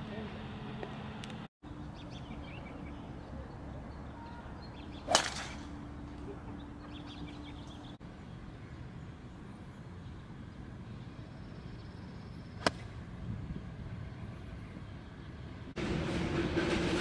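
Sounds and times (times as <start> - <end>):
golf driver striking ball: 5.1 - 5.6.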